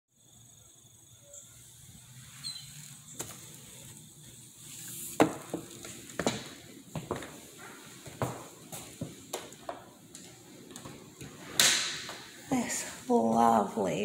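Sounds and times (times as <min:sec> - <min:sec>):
hard-soled shoe footsteps: 0:05.2 - 0:11.4.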